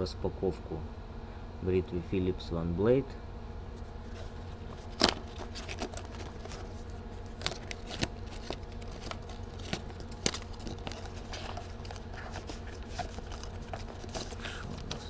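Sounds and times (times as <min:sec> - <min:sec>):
steady low hum: 0:00.0 - 0:15.0
packaging clicks and rustling: 0:04.0 - 0:15.0.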